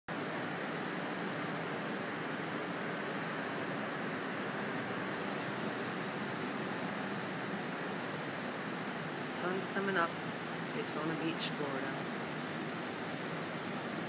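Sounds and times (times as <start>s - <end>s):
distant ocean surf: 0.1s - 14.0s.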